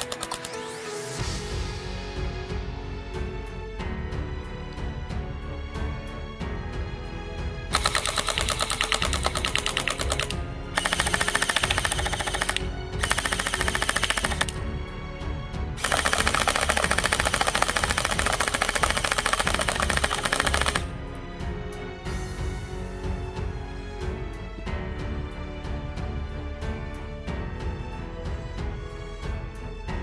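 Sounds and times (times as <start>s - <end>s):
background music: 0.0s - 30.0s
gel blasters firing full auto: 7.7s - 14.6s, 15.8s - 20.9s.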